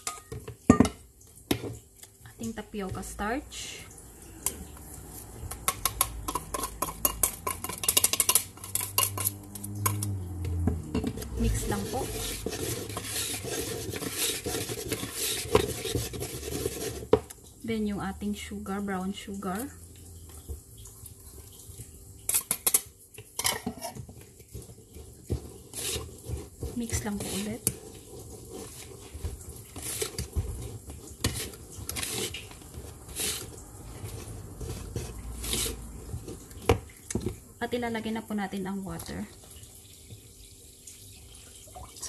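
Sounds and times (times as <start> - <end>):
whisk clinking against metal bowl: 0.0 - 1.0, 5.4 - 10.2, 11.0 - 17.0
whisk clinking against metal sieve: 0.0 - 1.7, 5.4 - 17.2, 25.3 - 36.5
soft scraping in bowl: 11.1 - 17.1, 23.7 - 36.6.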